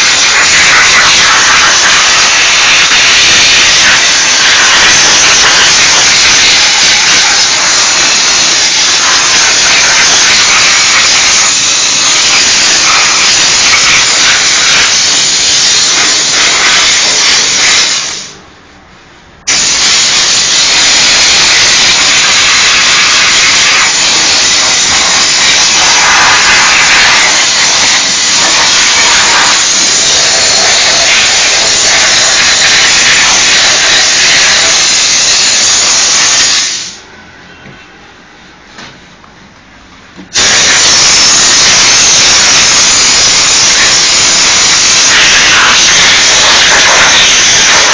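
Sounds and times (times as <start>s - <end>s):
steam cleaner hissing: 0.0s - 18.4s, 19.5s - 37.0s, 40.3s - 47.9s.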